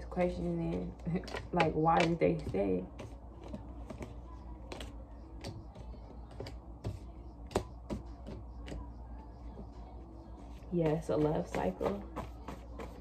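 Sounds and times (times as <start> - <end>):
cards tapping on a table: 1.3 - 8.9, 11.5 - 13.0.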